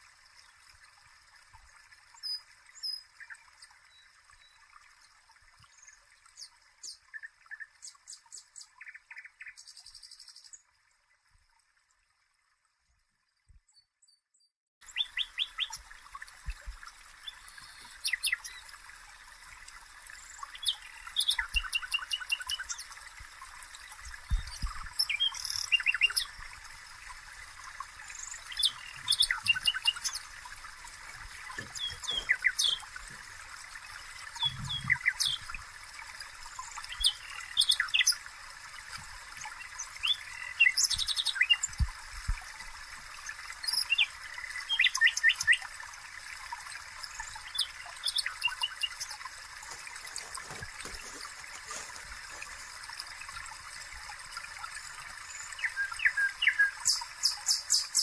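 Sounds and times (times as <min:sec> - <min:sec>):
small birds chirping: 0:13.7 - 0:15.9, 0:17.2 - 0:18.7, 0:20.2 - 0:23.0, 0:23.9 - 0:26.4, 0:28.0 - 0:35.6, 0:36.3 - 0:38.2, 0:39.4 - 0:41.9, 0:47.2 - 0:52.8, 0:55.2 - 0:58.0.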